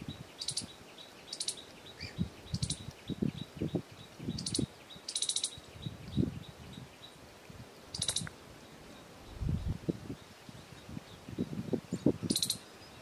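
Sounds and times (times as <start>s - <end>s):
squirrel chattering: 4.4s - 5.6s, 12.3s - 12.6s.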